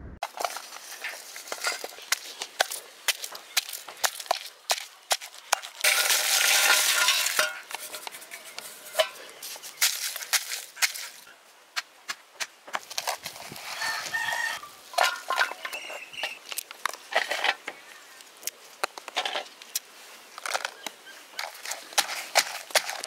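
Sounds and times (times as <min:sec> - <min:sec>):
chickens clucking: 0:13.6 - 0:16.5
rooster crowing: 0:13.7 - 0:14.8.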